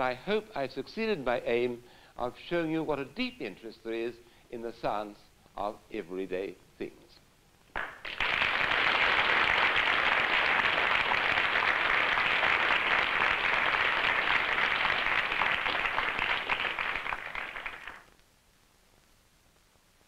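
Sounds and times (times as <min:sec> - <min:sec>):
audience applauding: 0:07.8 - 0:18.1.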